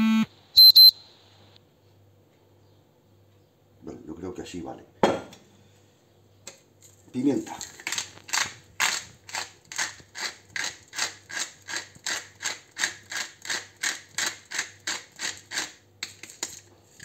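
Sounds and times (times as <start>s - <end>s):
pepper mill grinding: 7.6s - 17.0s.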